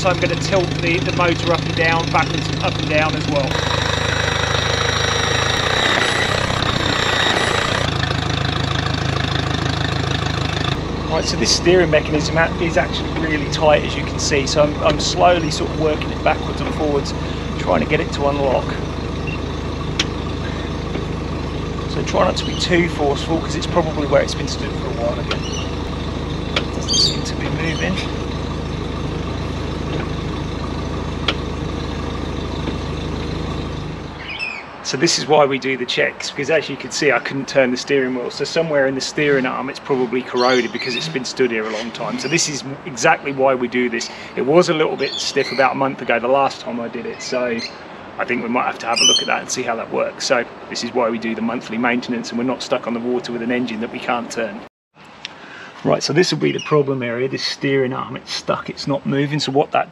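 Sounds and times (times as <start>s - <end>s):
outboard motor idling: 0.0s - 34.4s.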